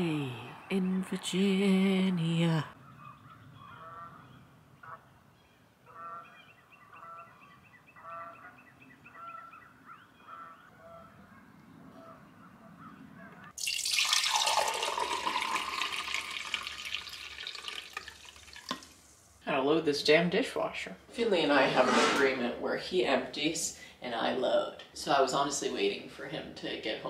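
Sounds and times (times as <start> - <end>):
faint honking bird calls: 2.8 - 13.5
tap water running into sink: 13.6 - 19.0.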